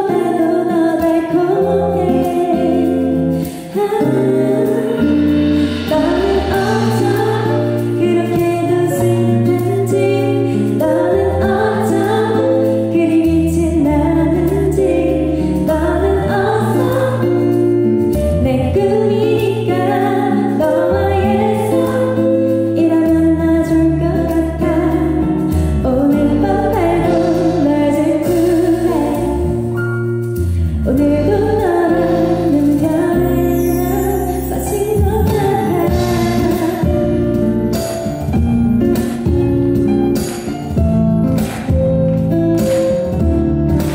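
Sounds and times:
woman singing pop ballad: 0:00.0 - 0:40.5
instrumental accompaniment: 0:00.0 - 0:43.9.

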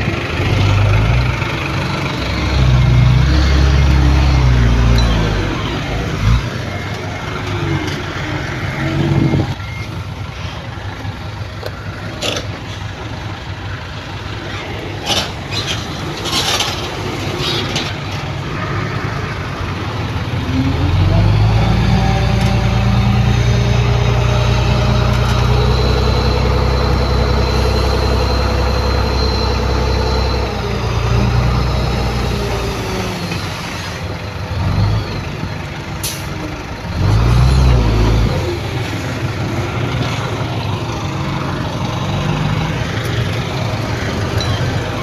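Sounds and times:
diesel machinery engine: 0:00.0 - 0:45.0
steady machine whine: 0:20.0 - 0:34.0.

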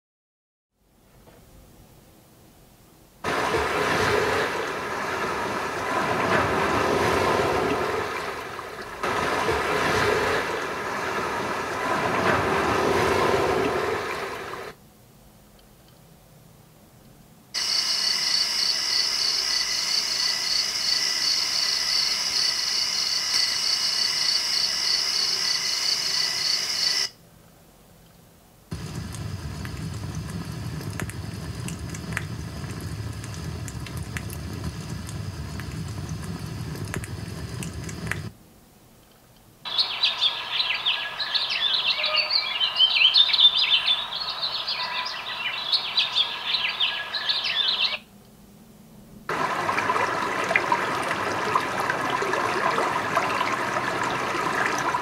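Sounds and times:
ocean waves from speaker: 0:03.2 - 0:14.8, 0:28.7 - 0:38.3, 0:39.7 - 0:48.0, 0:49.3 - 0:55.0.

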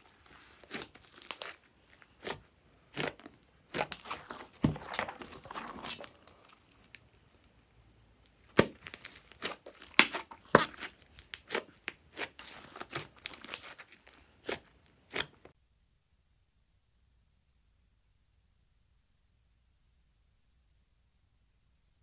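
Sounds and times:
slime squeezed crackling and popping: 0:00.1 - 0:07.2, 0:08.2 - 0:15.4.

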